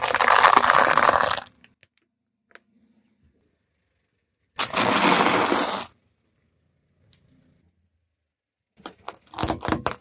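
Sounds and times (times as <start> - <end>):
tyre crushing waffle cones: 4.6 - 5.9.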